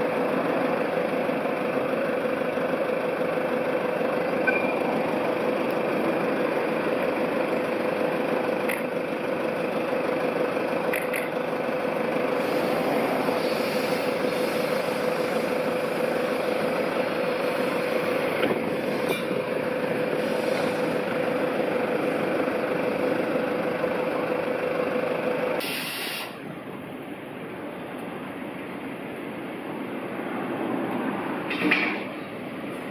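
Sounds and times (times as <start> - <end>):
locomotive whine: 0.0 - 32.9
air hiss: 12.3 - 16.1, 20.2 - 21.0, 25.6 - 26.4.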